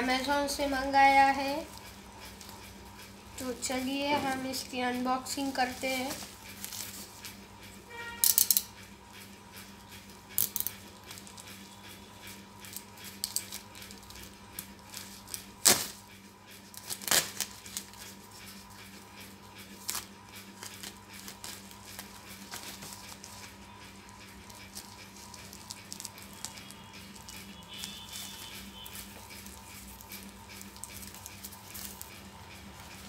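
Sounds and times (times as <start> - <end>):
plastic bag rustling and crinkling: 3.4 - 7.2
sharp plastic crackles: 13.0 - 18.2.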